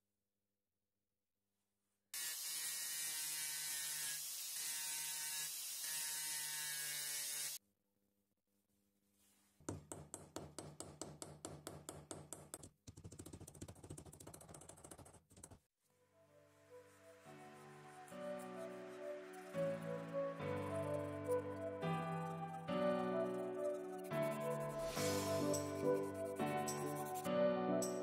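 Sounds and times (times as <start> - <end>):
faint background music: 16.2 - 28.0.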